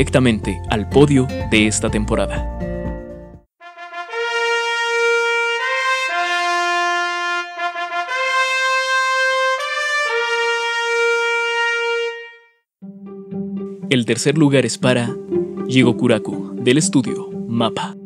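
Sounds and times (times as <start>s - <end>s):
brass fanfare: 3.6s - 12.6s.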